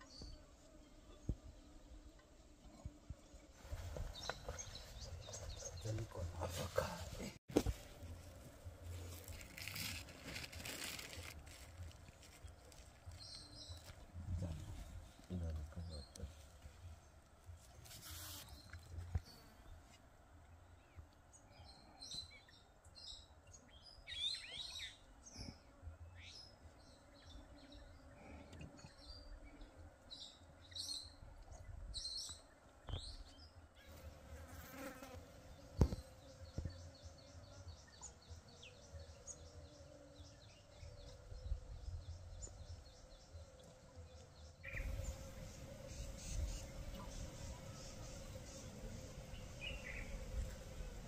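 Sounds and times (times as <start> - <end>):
birds chirping: 3.2 - 7.4, 34.8 - 51.0
insects buzzing: 33.8 - 51.0.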